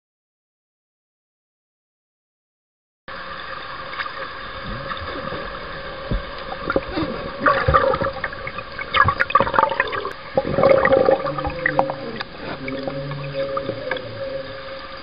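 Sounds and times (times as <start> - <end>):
steady low hum: 3.2 - 15.0
water bubbling underwater: 3.4 - 15.0.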